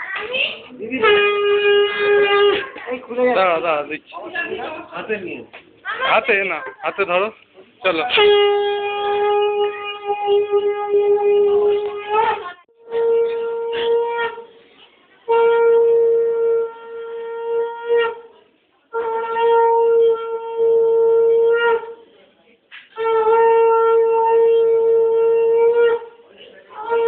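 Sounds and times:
conch shell blasts: 0:00.9 - 0:02.8, 0:08.0 - 0:14.6, 0:15.2 - 0:22.0, 0:22.9 - 0:26.2.

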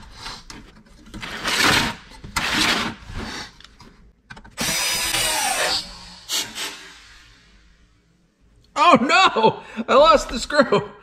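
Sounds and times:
cordless screwdriver motor: 0:04.6 - 0:06.8.

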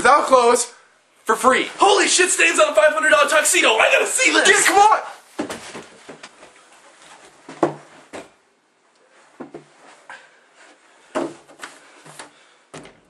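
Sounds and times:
thumps and knocks: 0:07.5 - 0:08.3, 0:11.1 - 0:13.0.

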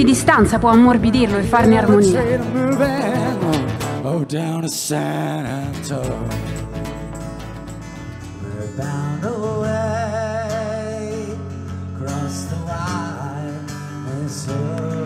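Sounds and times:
acoustic guitar strumming: 0:00.0 - 0:15.0
man singing with vibrato: 0:01.6 - 0:07.2, 0:08.3 - 0:15.0.

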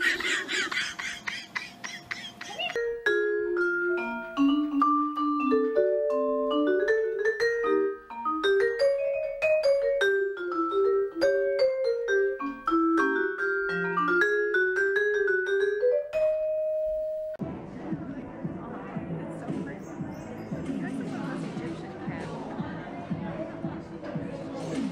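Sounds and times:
marimba melody: 0:00.0 - 0:17.4.

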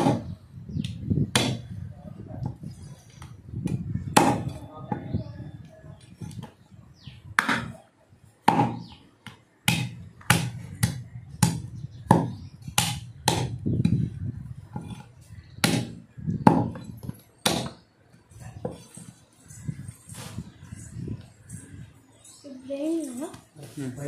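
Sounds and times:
cleaver chopping meat and bone: 0:00.0 - 0:00.3, 0:01.3 - 0:01.7, 0:03.6 - 0:04.6, 0:08.5 - 0:14.0, 0:15.6 - 0:16.8, 0:17.4 - 0:17.8.

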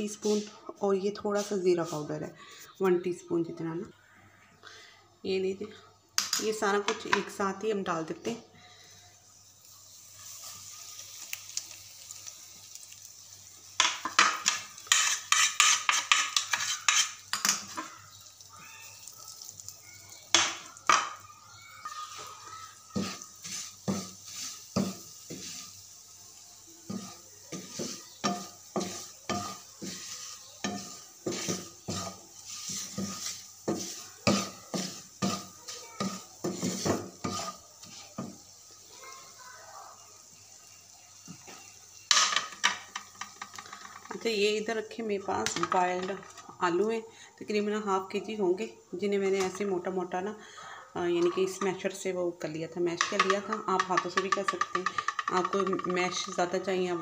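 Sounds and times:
light sizzle: 0:00.0 - 0:57.0
wooden spatula scraping a pan: 0:01.3 - 0:02.2, 0:13.8 - 0:18.0, 0:21.8 - 0:26.0, 0:26.8 - 0:38.6, 0:53.0 - 0:56.4.

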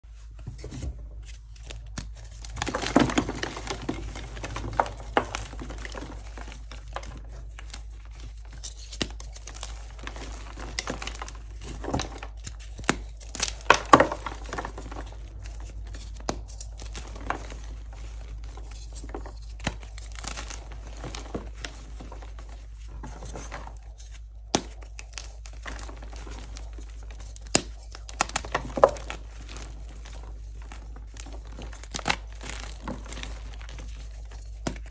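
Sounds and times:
chalk crunching and crackling: 0:01.2 - 0:34.9
chalk snapping cracks: 0:24.0 - 0:29.6.

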